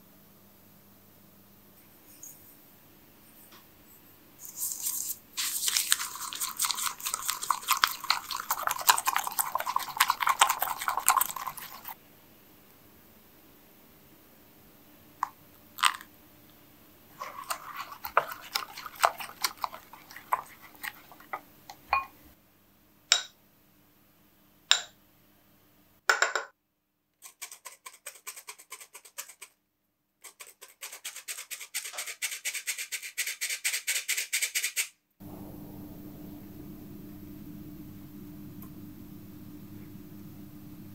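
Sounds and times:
whisk tapping and scraping in bowl: 3.3s - 12.0s, 17.2s - 22.1s, 27.2s - 29.6s, 30.2s - 34.9s
flour sifter clicking and rasping: 4.4s - 12.0s, 17.2s - 21.4s, 27.2s - 29.6s, 30.2s - 34.9s.

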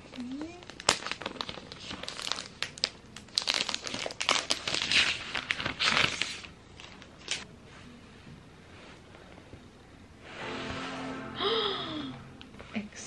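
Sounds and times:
packaging crinkling and rustling: 0.1s - 7.4s.

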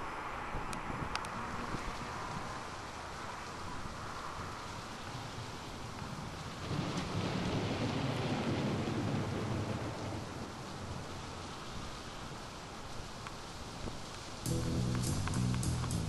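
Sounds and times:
steady rain: 0.0s - 16.0s.

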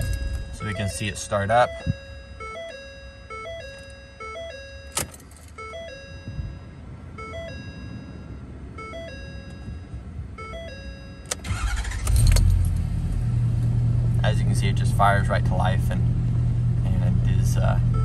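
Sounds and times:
diesel engine idling: 0.0s - 2.7s, 11.4s - 18.0s
two-note warning chime: 0.0s - 5.0s
starter cranking: 11.4s - 12.5s.

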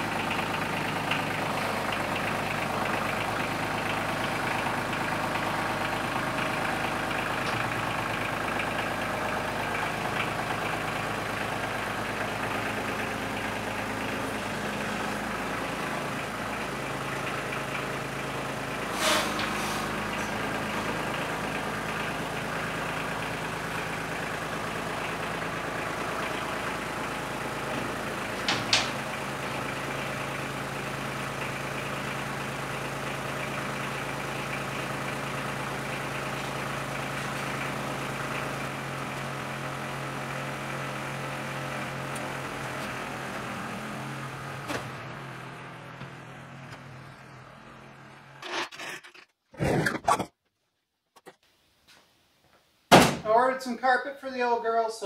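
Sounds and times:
tractor engine running: 0.0s - 51.4s
loud knocks: 28.4s - 29.0s
dollies scraping and rattling: 48.4s - 50.3s.

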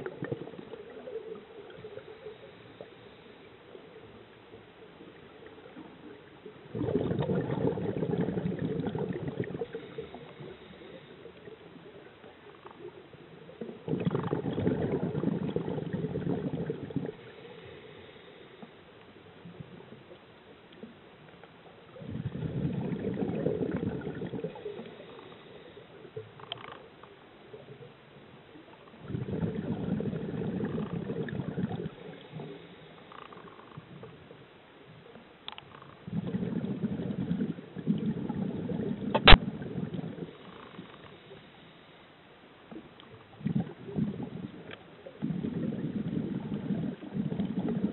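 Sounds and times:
quiet inhalations: 0.0s - 6.9s, 7.5s - 13.7s, 14.4s - 20.6s, 21.4s - 27.7s, 28.9s - 47.9s
bubbling regulator exhalations: 6.7s - 10.6s, 13.8s - 17.3s, 22.0s - 25.0s, 29.0s - 32.5s, 36.0s - 40.9s, 43.4s - 47.9s
sharp click: 39.2s - 39.4s.

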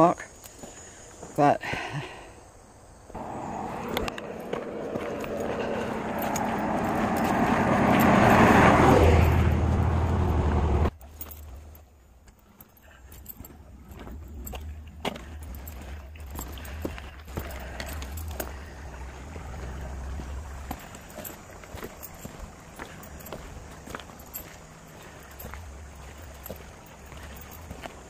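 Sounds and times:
car passing on road: 3.1s - 11.0s, 14.2s - 28.0s
low hum: 3.2s - 12.2s, 12.8s - 28.0s.

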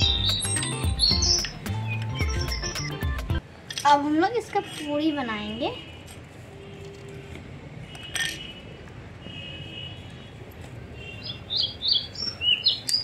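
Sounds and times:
birds chirping: 0.0s - 3.4s, 11.0s - 13.0s.

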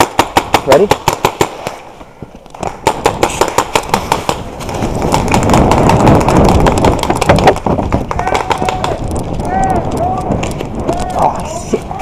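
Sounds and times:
paintball markers firing: 0.0s - 1.8s, 2.5s - 9.2s.

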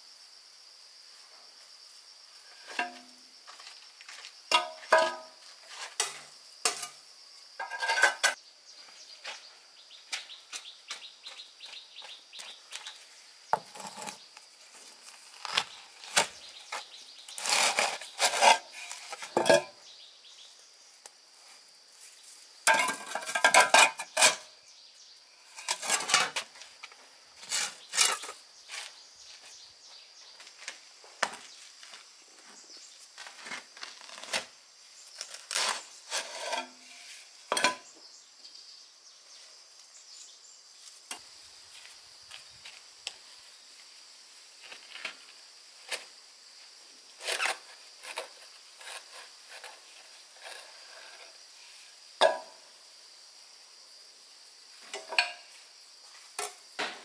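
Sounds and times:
hard objects clattering: 7.6s - 8.4s, 17.4s - 19.8s, 22.7s - 24.5s
high insect buzz: 23.7s - 57.0s.

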